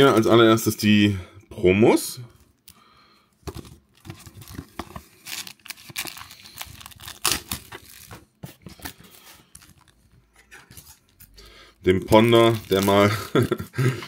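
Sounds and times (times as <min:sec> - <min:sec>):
plastic wrapper crinkling: 0:03.5 - 0:13.6.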